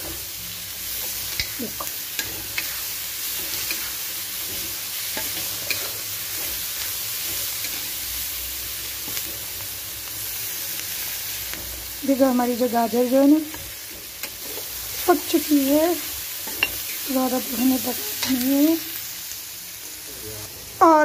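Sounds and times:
vegetables sizzling in hot oil: 0:00.0 - 0:21.0.

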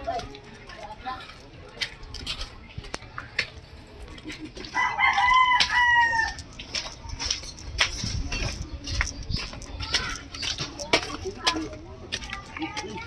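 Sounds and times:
sandal footsteps on concrete: 0:00.0 - 0:13.0
rooster crowing: 0:04.8 - 0:06.4.

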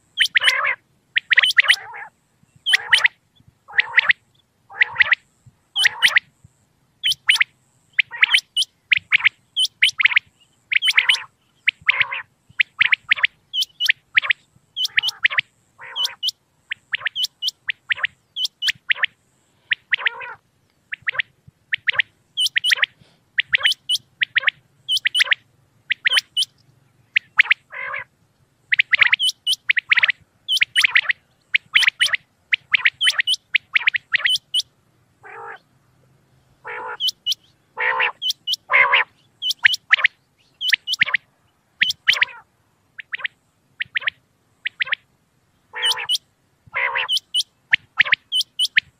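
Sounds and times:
quail calling: 0:00.0 - 0:06.4, 0:07.0 - 0:35.7, 0:36.6 - 0:45.1, 0:45.7 - 0:48.9.

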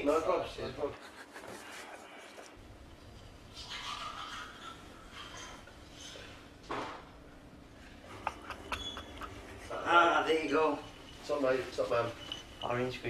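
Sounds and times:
soft rustle: 0:10.5 - 0:13.0.

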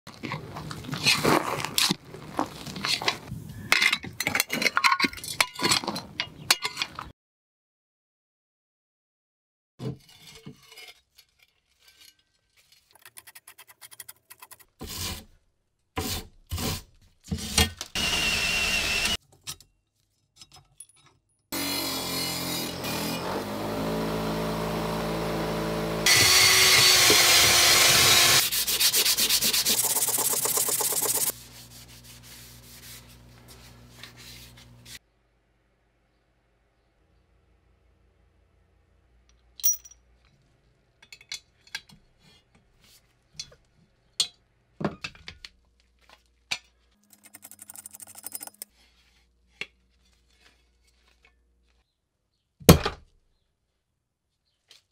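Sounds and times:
scrapes and knocks on a shovel: 0:09.8 - 0:15.3, 0:46.0 - 0:51.8
bench grinder wire wheel scrubbing: 0:22.0 - 0:35.0, 0:47.0 - 0:51.3.

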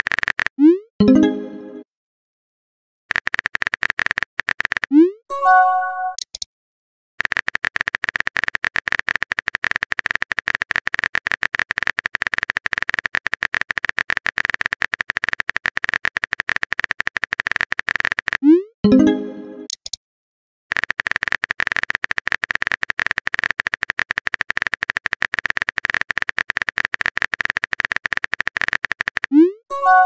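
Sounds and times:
keyboard typing clicks: 0:00.0 - 0:01.3, 0:03.1 - 0:05.1, 0:06.0 - 0:06.5, 0:07.2 - 0:20.0, 0:20.7 - 0:29.6
chiming message tone: 0:01.0 - 0:01.8, 0:05.3 - 0:06.2, 0:18.8 - 0:19.7, 0:29.7 - 0:30.0.

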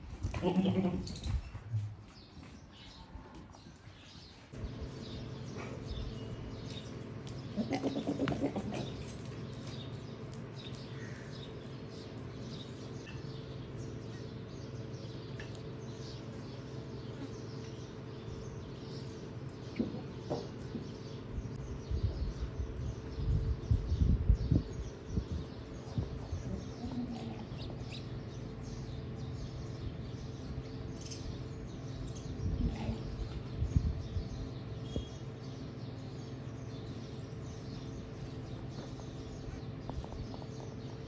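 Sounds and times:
small birds chirping: 0:01.0 - 0:41.0
low hum: 0:04.5 - 0:41.0
animal call: 0:07.6 - 0:09.0.

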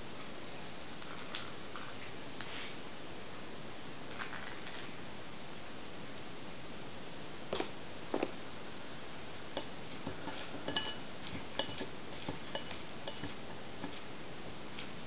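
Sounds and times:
taps against ceramic bowl: 0:11.6 - 0:14.0.

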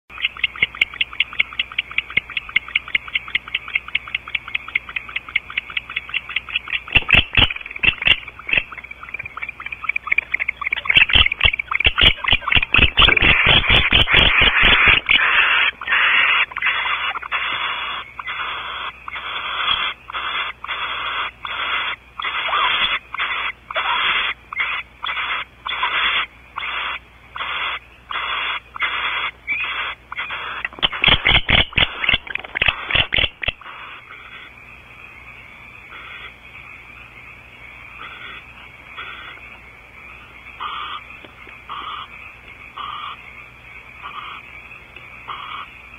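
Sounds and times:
owls hissing snore calls: 0:09.4 - 0:31.2, 0:31.8 - 0:34.5, 0:35.9 - 0:36.4, 0:38.0 - 0:39.4, 0:40.6 - 0:41.0, 0:42.8 - 0:43.2, 0:44.0 - 0:44.4, 0:45.3 - 0:45.7.

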